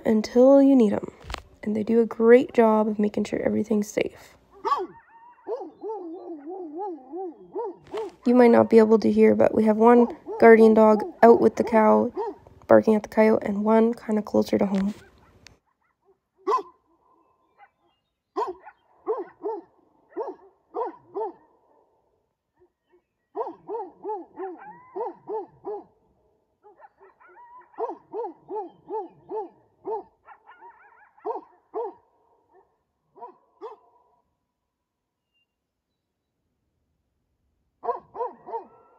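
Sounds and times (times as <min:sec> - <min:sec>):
dog barking: 0:04.6 - 0:08.2, 0:12.1 - 0:12.4, 0:15.7 - 0:21.9, 0:23.4 - 0:26.0, 0:26.6 - 0:34.2, 0:37.8 - 0:38.9.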